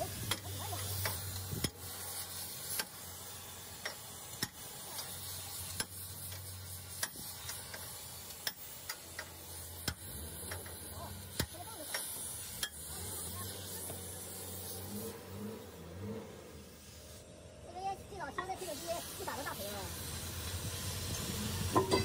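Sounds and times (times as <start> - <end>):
gas cutting torch hissing: 0.0 - 22.0.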